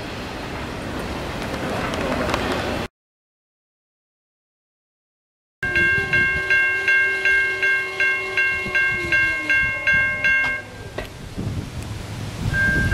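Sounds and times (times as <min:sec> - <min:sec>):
diesel locomotives rumbling: 0:00.0 - 0:02.9, 0:05.6 - 0:12.9
railroad crossing bell ringing: 0:05.6 - 0:11.1, 0:12.6 - 0:12.9.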